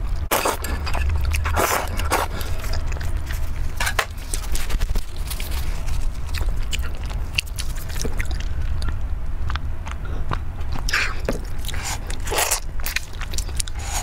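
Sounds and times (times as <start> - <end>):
steady low hum: 0.0 - 14.0
chewing and mouth clicks: 0.2 - 14.0.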